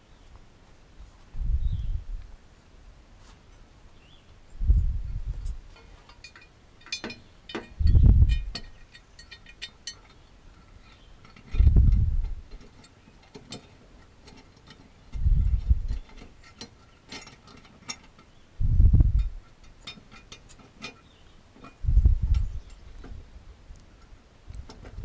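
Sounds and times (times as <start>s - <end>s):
dull low thumps: 1.3s - 2.3s, 4.6s - 5.7s, 7.8s - 8.5s, 11.6s - 12.4s, 15.2s - 16.0s, 18.6s - 19.4s, 21.8s - 23.2s.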